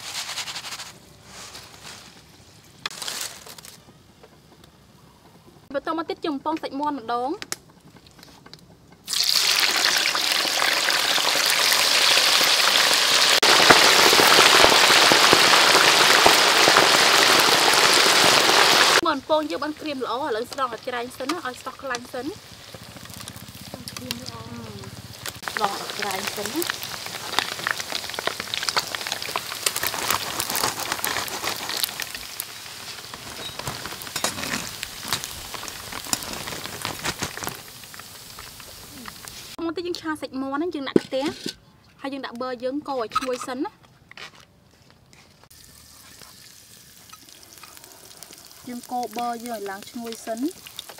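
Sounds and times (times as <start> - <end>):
oil popping: 9.0 - 39.6, 45.5 - 50.9
oil sizzling in wok: 9.0 - 39.6, 45.5 - 50.9.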